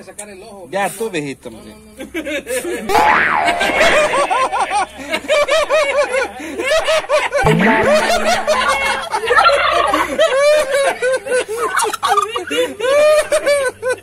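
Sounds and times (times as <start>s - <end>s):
turkey calling: 9.3s - 10.0s, 11.6s - 12.3s.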